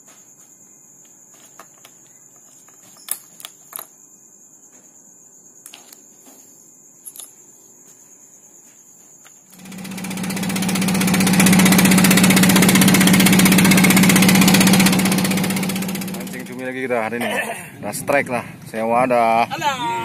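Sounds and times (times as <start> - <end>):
boat engine running: 9.6 - 17.1.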